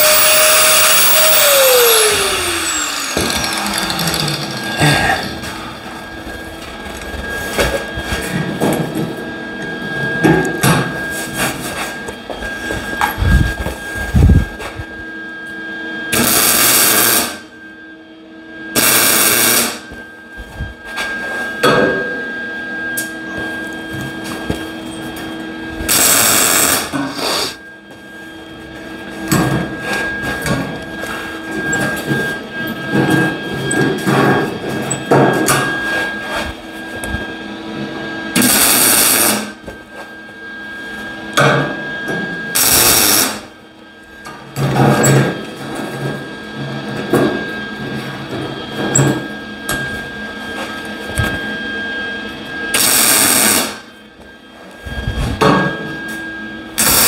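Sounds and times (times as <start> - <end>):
welder hum: 0.0 - 8.4, 16.1 - 17.5, 18.7 - 21.4, 23.0 - 28.0, 38.3 - 39.6, 42.5 - 43.6, 52.7 - 53.9, 56.1 - 57.0
welding arc crackle: 16.2 - 17.4, 18.8 - 19.8, 25.9 - 27.6, 42.6 - 43.5.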